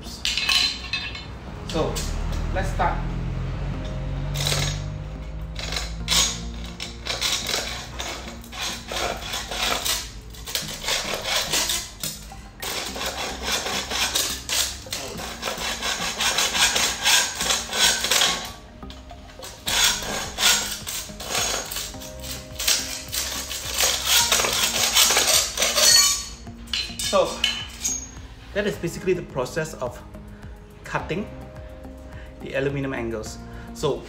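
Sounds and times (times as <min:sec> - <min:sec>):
hacksaw cutting metal: 0:04.2 - 0:18.6, 0:19.4 - 0:28.2.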